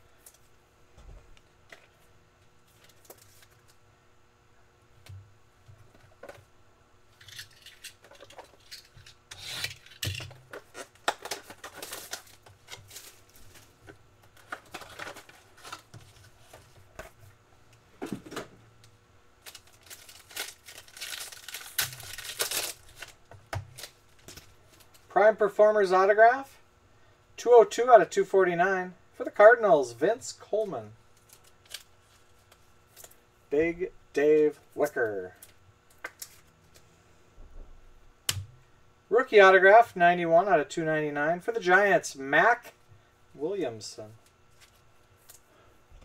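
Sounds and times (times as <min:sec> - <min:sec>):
wrapper tearing: 0:07.2 - 0:13.7, 0:19.4 - 0:25.0
cardboard and wrapper rustling: 0:09.7 - 0:17.2, 0:19.4 - 0:25.0.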